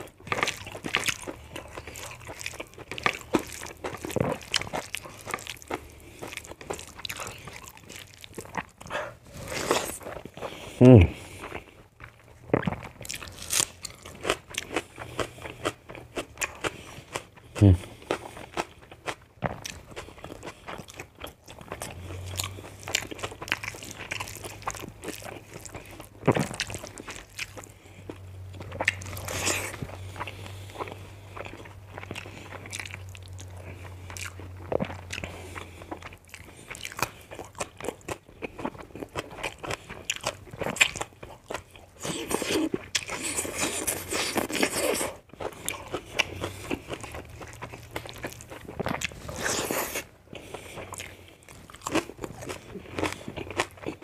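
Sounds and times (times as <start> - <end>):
person chewing crunchy food: 0.0 - 54.0.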